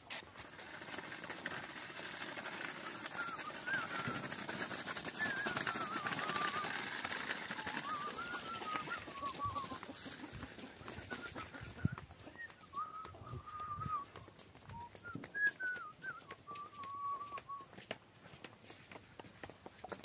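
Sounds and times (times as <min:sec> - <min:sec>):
footsteps on dirt path: 0:00.0 - 0:20.0
person whistling a tune: 0:03.1 - 0:04.4, 0:05.2 - 0:06.8, 0:07.6 - 0:09.8, 0:11.1 - 0:17.7.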